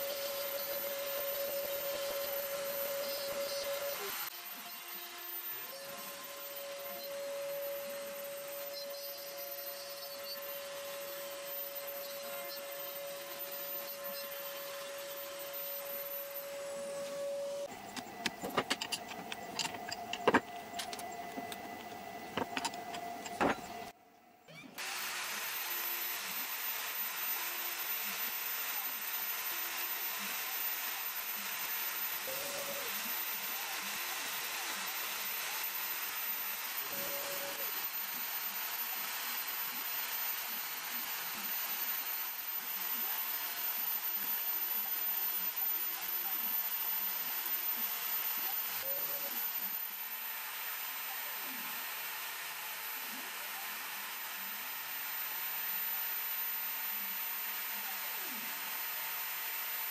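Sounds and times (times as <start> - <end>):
router spindle with faint whine: 0.0 - 59.9.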